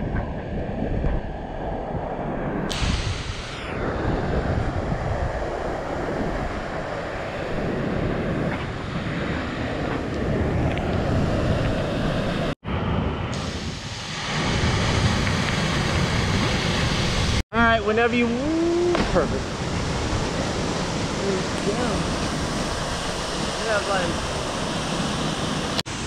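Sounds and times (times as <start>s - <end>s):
wind buffeting microphone: 0.0s - 25.8s
waterfall rushing into pool: 18.2s - 26.0s.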